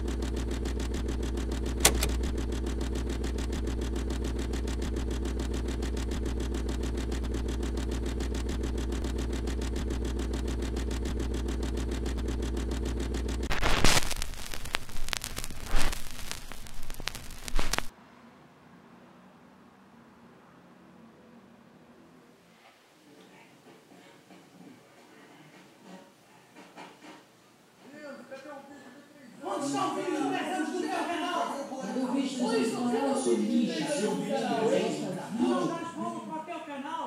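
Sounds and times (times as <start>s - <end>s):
crackles and static bursts: 0.0s - 17.9s
film projector clattering: 0.0s - 17.9s
projector click: 0.1s - 17.9s.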